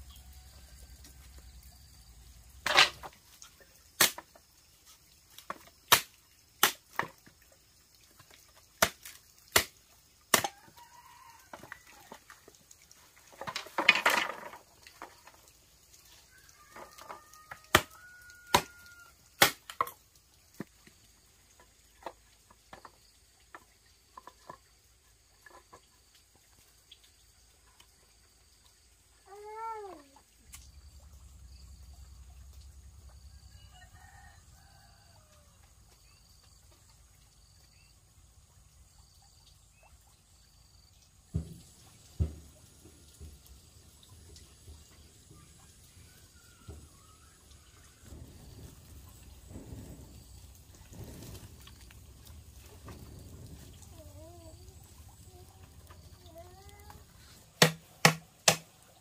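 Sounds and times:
sharp knocks: 57.6 - 58.7.

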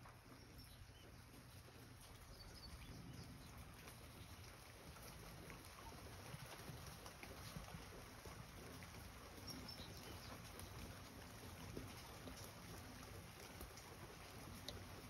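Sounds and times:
soft ticks: 13.4 - 14.9.

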